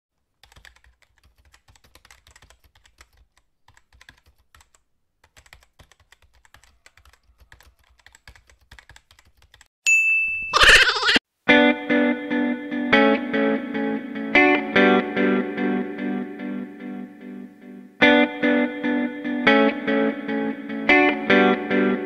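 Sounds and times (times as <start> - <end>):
keyboard typing clicks: 0.4 - 9.7.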